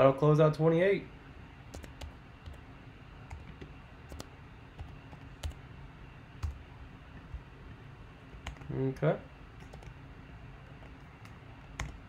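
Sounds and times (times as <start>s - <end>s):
keyboard typing clicks: 1.7s - 2.6s, 3.3s - 5.6s, 8.4s - 8.7s, 9.6s - 10.0s, 10.8s - 12.0s.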